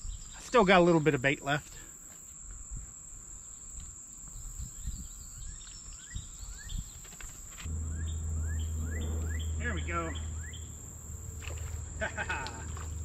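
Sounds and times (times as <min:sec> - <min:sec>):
insects buzzing: 0:01.9 - 0:13.0
steady low hum: 0:07.6 - 0:13.0
short rising chirps: 0:07.7 - 0:13.0
soft low knocks: 0:07.7 - 0:13.0.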